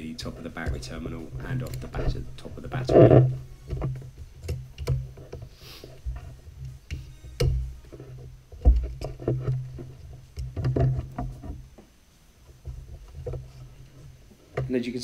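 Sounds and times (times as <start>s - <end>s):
low hum: 0.0s - 11.7s
plastic clicks and knocks: 0.6s - 5.5s, 6.9s - 11.9s.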